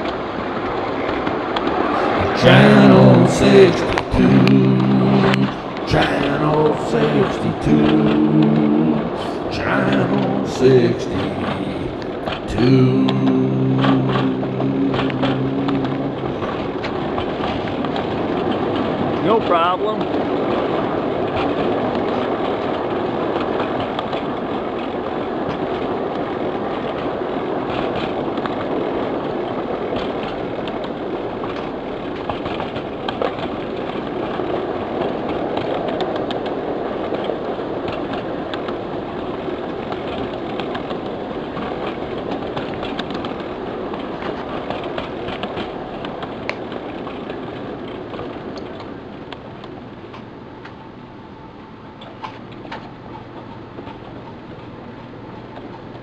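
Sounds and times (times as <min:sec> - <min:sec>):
rail joint clicks: 0:29.9 - 0:50.9.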